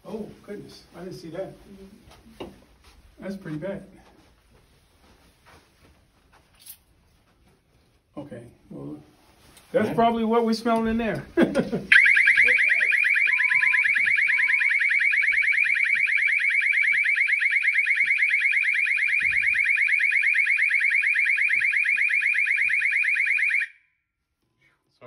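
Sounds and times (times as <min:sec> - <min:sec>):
short lower beeps: 0:11.9 - 0:15.7
pulsing door alarm tone: 0:11.9 - 0:23.9.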